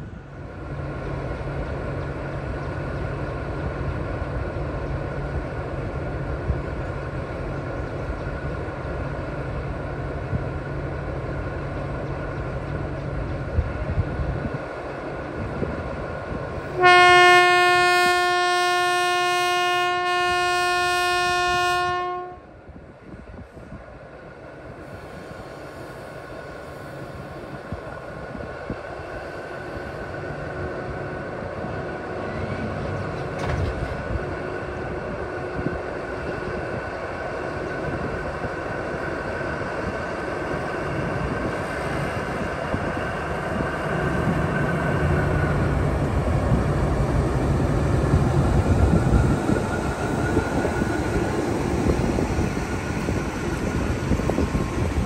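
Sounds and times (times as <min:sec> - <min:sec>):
locomotive engine and wheels: 0:00.0 - 0:55.0
locomotive horn blast: 0:16.8 - 0:22.5.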